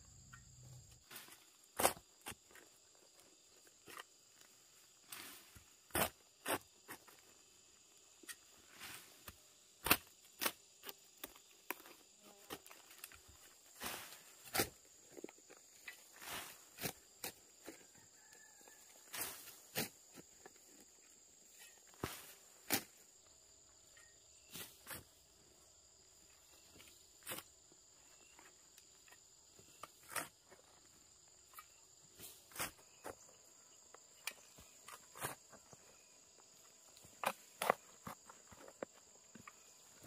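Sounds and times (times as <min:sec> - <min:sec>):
shovel chopping into soil: 0:01.2 - 0:02.4, 0:05.9 - 0:07.1, 0:09.0 - 0:11.9, 0:13.8 - 0:14.8, 0:37.1 - 0:38.3.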